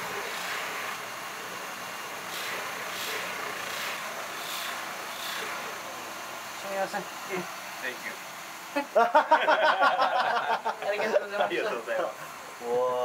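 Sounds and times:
friction hiss of wood on wheel: 0.0 - 8.7
buffing wheel motor humming: 0.0 - 9.0.

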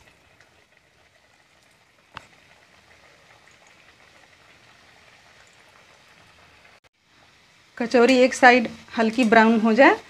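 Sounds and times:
oil sizzling and bubbling: 0.0 - 10.0.

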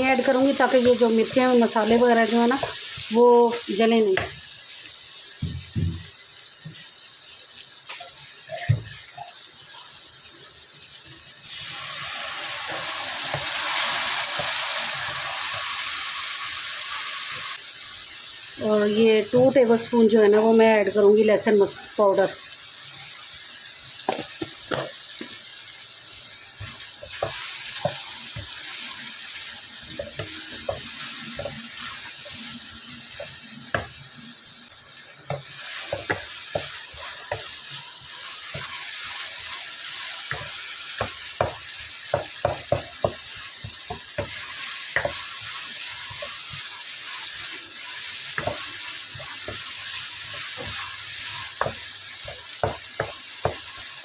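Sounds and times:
food sizzling in oil: 0.0 - 54.0
wooden spoon knocking on pan: 24.1 - 25.4, 35.3 - 37.6, 40.3 - 45.2, 48.4 - 49.7, 51.6 - 53.7.

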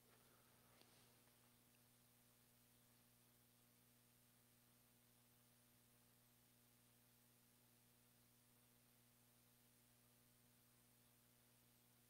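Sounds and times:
faint hum and hiss: 0.0 - 12.0.

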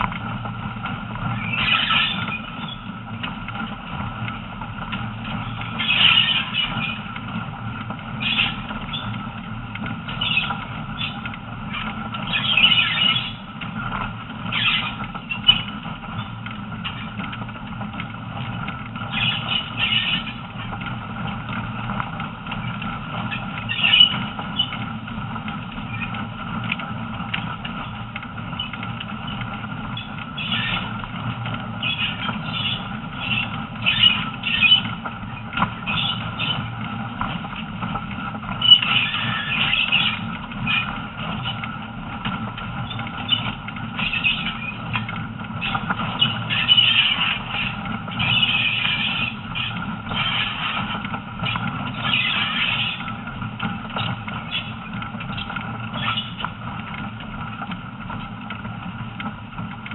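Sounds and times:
train wheels rumbling on rails: 0.0 - 59.9
wheel squeals: 1.1 - 17.5, 18.3 - 57.1.

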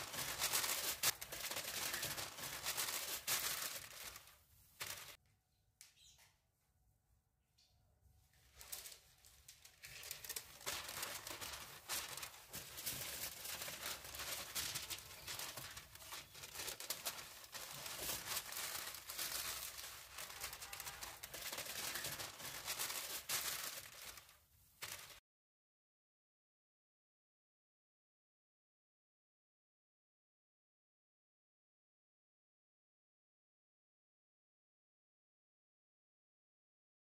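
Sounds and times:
aluminium foil crinkling: 0.0 - 5.2, 8.4 - 25.2.

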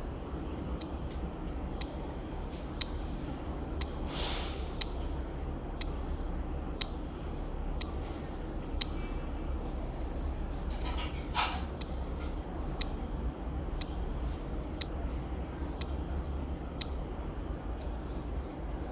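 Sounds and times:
amplifier hum and hiss: 0.0 - 10.8
sharp electronic clicks: 2.8 - 3.1, 6.8 - 7.0.

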